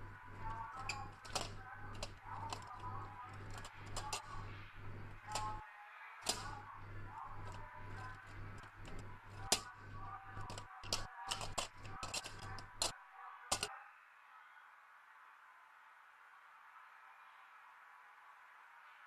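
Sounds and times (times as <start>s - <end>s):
low hum: 0.0s - 5.6s, 6.2s - 12.9s
sharp clicks and taps: 0.0s - 5.6s, 6.2s - 12.9s.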